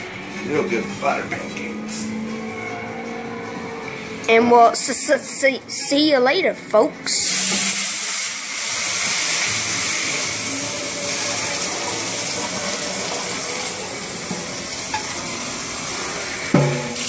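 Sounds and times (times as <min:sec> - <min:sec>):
tap water running: 0:07.1 - 0:17.0
water hissing into steam: 0:07.1 - 0:17.0.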